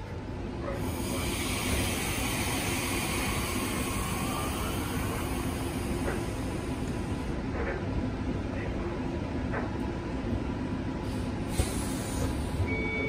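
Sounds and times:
steady hiss of train equipment: 0.7 - 7.4, 11.0 - 12.7.

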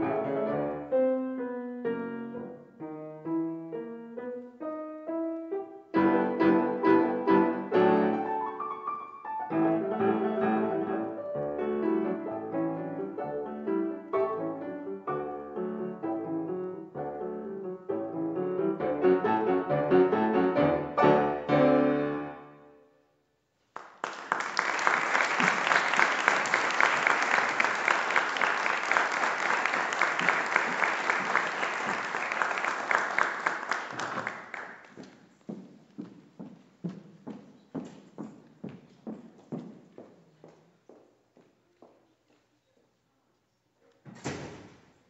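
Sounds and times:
grand piano playing: 0.0 - 22.9
audience applause: 23.7 - 35.0.

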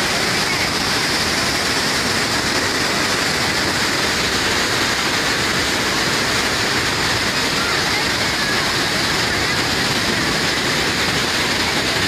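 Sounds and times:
water rushing through dam gates: 0.0 - 12.0.

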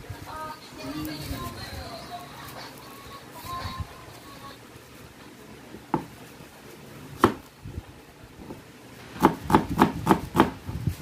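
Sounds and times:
knife chopping on cutting board: 7.2 - 7.4, 9.2 - 10.6.

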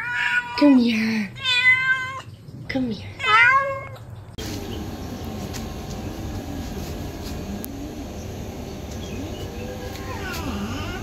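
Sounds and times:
cat meowing: 0.0 - 2.3, 3.2 - 4.0, 9.8 - 11.0
outdoor background rumble and hiss: 0.0 - 11.0.

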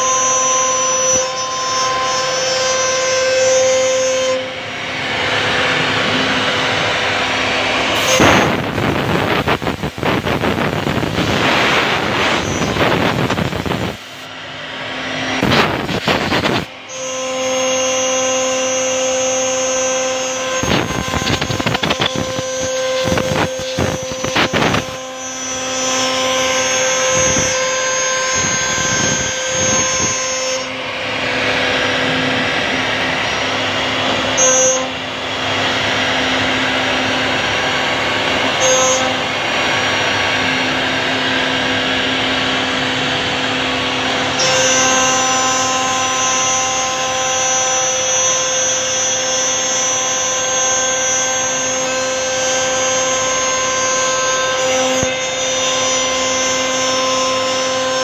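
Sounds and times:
router spindle whine: 0.0 - 58.0
bit cutting through wood: 5.0 - 34.9, 44.1 - 58.0.

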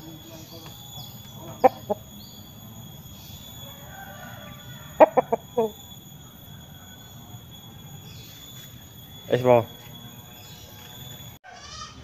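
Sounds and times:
insect trill: 0.0 - 12.0
rooster clucking: 1.4 - 2.1, 4.8 - 5.8.

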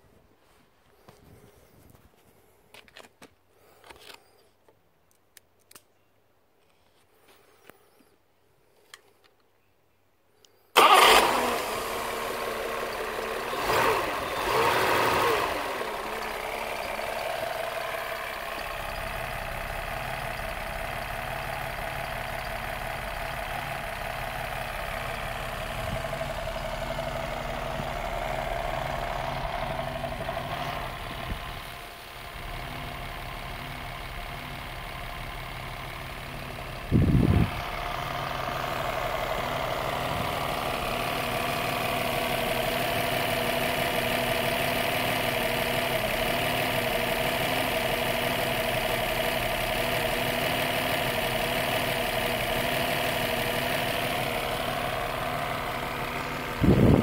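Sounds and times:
car engine idling: 10.8 - 57.0
car engine starting and revving: 10.8 - 57.0.

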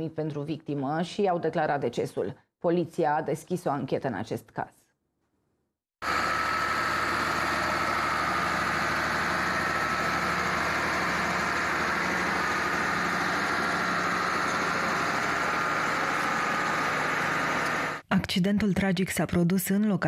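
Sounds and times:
engine idling: 6.0 - 18.0.

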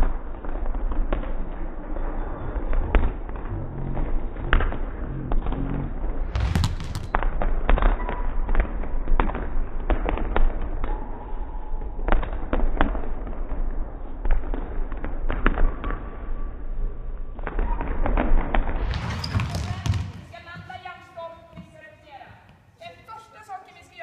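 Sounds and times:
basketballs bouncing on floor: 0.0 - 2.0, 6.4 - 10.9, 17.4 - 23.1
balls hitting rim and backboard: 4.4 - 8.2, 17.4 - 21.8.

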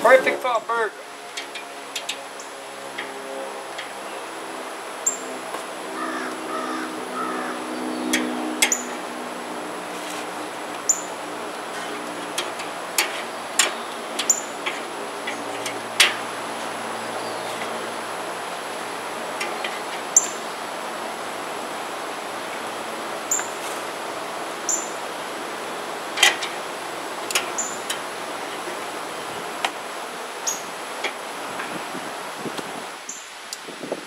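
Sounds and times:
metal tongs clicking on grate: 1.4 - 2.2, 12.0 - 16.3, 26.2 - 26.6, 27.2 - 28.7.

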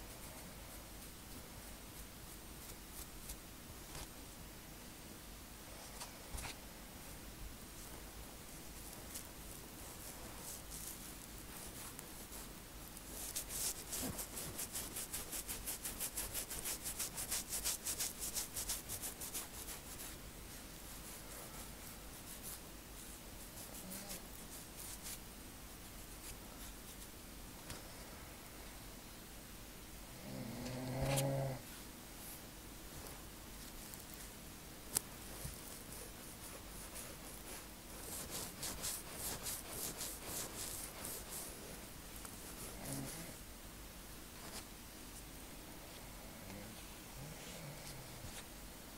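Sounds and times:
fingernails scratching scalp: 9.9 - 20.2, 23.4 - 25.2, 34.9 - 41.6, 42.4 - 43.3.

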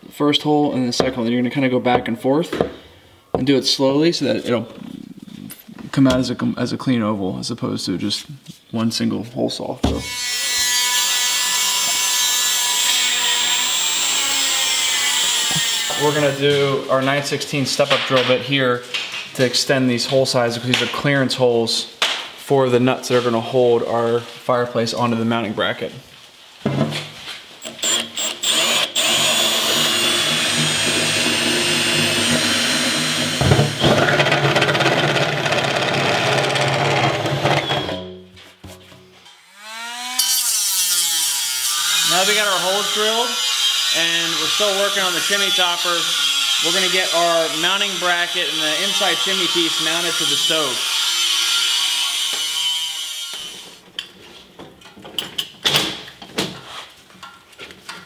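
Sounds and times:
power tool grinding metal: 10.0 - 16.6, 27.6 - 38.0, 39.3 - 53.8
cordless drill whining: 27.6 - 38.0.

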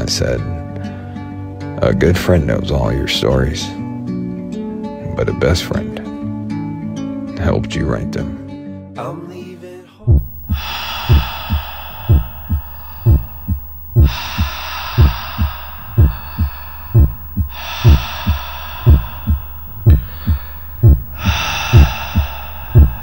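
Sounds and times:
long breaths: 10.0 - 23.0
heartbeat low thumps: 10.1 - 23.0.

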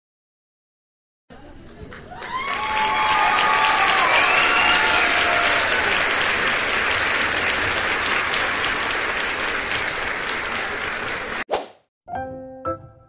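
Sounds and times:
crowd applauding and cheering: 1.5 - 11.5
voices whooping: 2.1 - 6.0.

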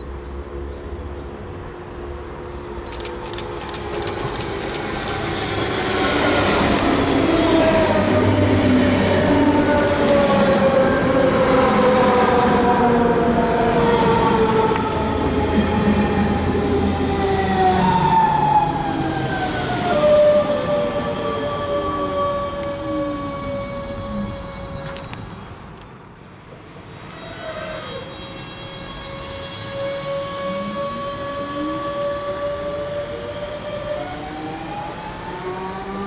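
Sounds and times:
train wheels rumbling on rails: 2.7 - 36.0.

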